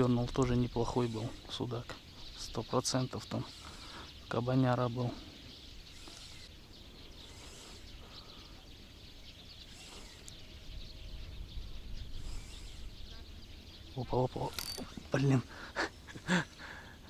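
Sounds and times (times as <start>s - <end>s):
wind rumble on microphone: 10.4s - 13.9s.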